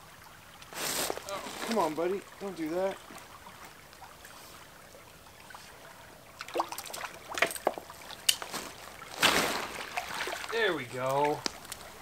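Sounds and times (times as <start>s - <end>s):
creek water trickling: 0.0s - 12.0s
fish splashing: 5.6s - 12.0s.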